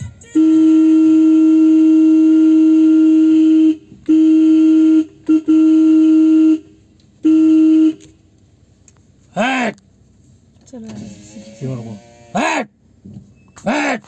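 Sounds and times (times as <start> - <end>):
vehicle horn blasts: 0.0 - 8.2.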